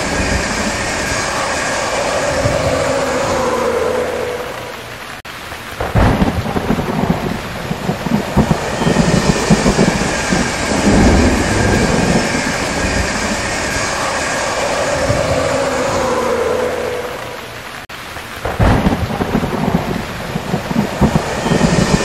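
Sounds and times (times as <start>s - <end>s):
train rumbling past: 0.0s - 4.8s, 6.5s - 17.8s
rain hissing: 0.0s - 22.0s
high whine: 8.2s - 17.8s.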